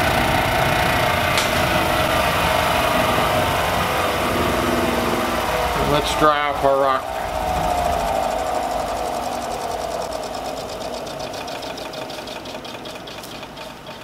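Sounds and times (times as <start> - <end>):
motor whine winding down: 0.0 - 14.0
spinning wheel ticking: 0.0 - 14.0.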